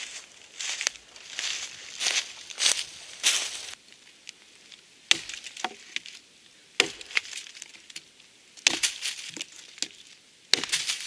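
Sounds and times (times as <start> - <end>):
hatchet chopping branch: 5.1 - 6.1, 6.8 - 7.7, 8.6 - 11.0.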